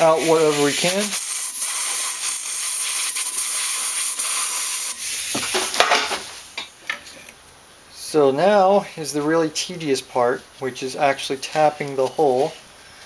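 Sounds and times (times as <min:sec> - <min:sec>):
compressed air blow gun hissing: 0:00.0 - 0:06.6.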